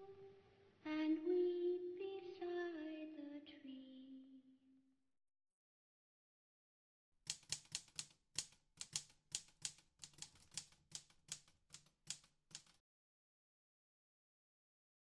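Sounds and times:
typewriter keys clacking: 7.3s - 12.8s.

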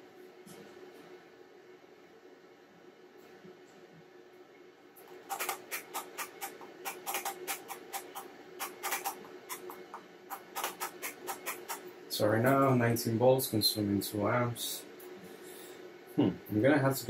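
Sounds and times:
faint steady hum: 0.0s - 17.0s
keyboard keys tapping: 5.3s - 11.8s.

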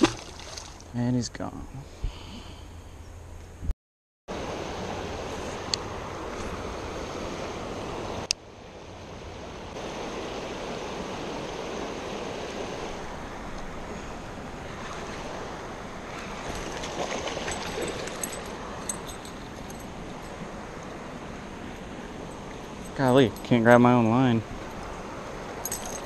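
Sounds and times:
light ticks and splashes: 0.0s - 0.9s
creek water running over rocks: 0.0s - 1.0s, 4.3s - 8.3s, 8.9s - 26.0s.

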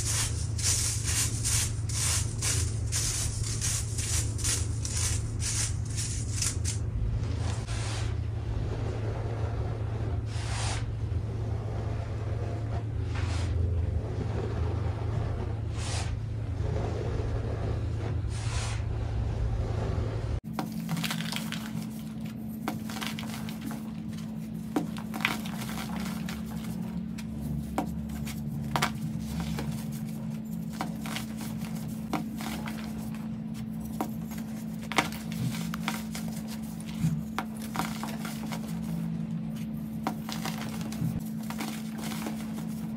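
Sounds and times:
chalk pieces cracking: 0.0s - 6.9s, 20.5s - 42.9s
hands crushing baking soda: 0.0s - 7.7s, 20.5s - 42.9s
steady low hum: 0.0s - 42.9s.

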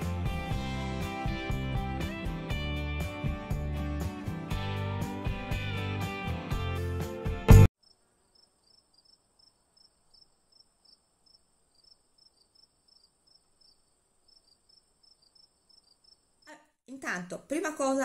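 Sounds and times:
faint high-pitched chirping: 7.8s - 16.6s.

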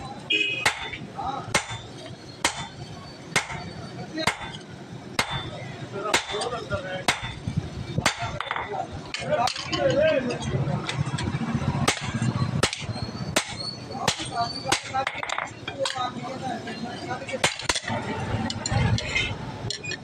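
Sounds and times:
hammer clanking on hot steel: 0.6s - 4.6s, 5.2s - 5.5s, 6.1s - 9.7s, 11.8s - 16.0s, 17.4s - 20.0s.

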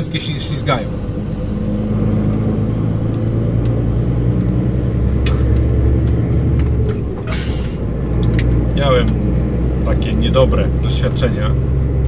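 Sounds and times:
road noise: 0.0s - 12.0s
truck diesel engine drone: 0.0s - 12.0s
clicks and rattles in cab: 5.2s - 9.2s.

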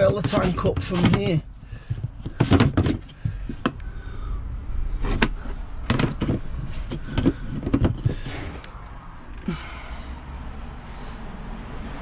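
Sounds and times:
plastic hatch lid clicks and knocks: 0.0s - 3.8s, 5.0s - 8.4s
low steady rumble: 3.0s - 11.4s.

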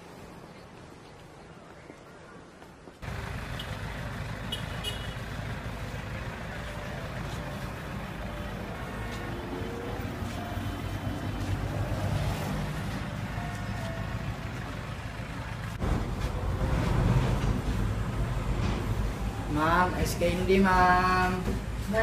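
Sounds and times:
street traffic engine rumble: 0.1s - 22.0s.

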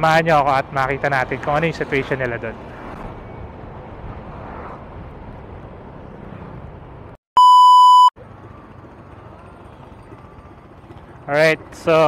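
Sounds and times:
motorcycle road and wind noise: 0.0s - 7.2s, 8.2s - 12.0s
loud steady test tone beep: 7.4s - 8.2s.

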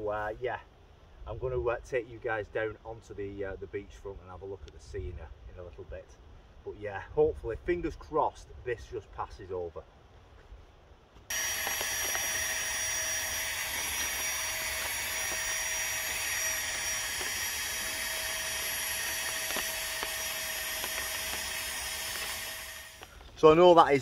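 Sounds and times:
electric air pump whining: 11.3s - 23.4s.

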